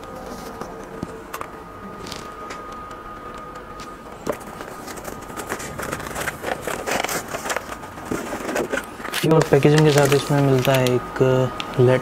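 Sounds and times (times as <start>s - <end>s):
cardboard and plastic rustling: 3.8s - 11.0s.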